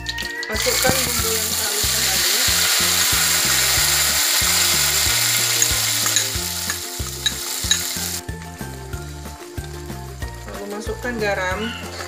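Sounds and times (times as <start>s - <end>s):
oil popping and crackling: 0.0s - 12.0s
paste sizzling in hot oil: 0.1s - 9.0s.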